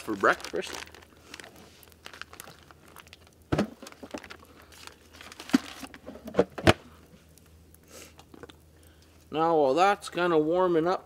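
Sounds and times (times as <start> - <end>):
plastic packaging crinkling: 0.0 - 6.4.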